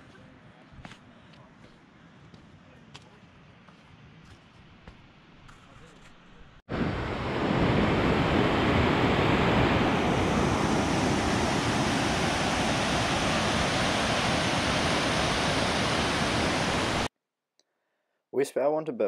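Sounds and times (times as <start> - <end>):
river rapids rushing: 10.3 - 17.1.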